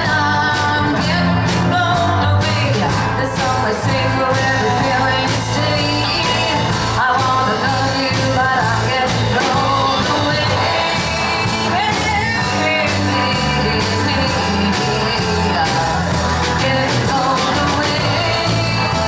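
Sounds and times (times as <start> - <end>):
live rock band playing: 0.0 - 19.0
woman singing lead: 0.0 - 19.0.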